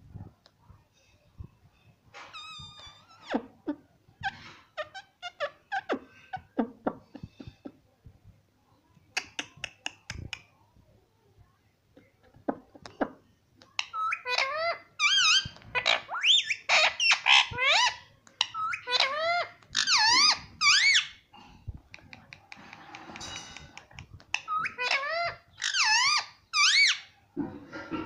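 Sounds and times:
parakeet chirping: 0:13.8 - 0:21.2, 0:22.8 - 0:27.1.

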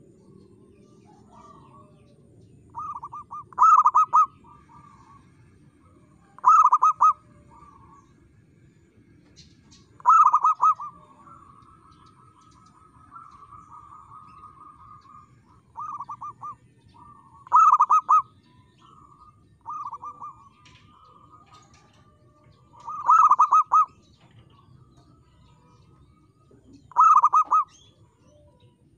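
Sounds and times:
dove cooing: 0:00.0 - 0:08.3, 0:09.8 - 0:28.7
wavering bird trill: 0:02.6 - 0:05.2, 0:05.9 - 0:08.2, 0:09.9 - 0:24.2, 0:26.9 - 0:28.5.

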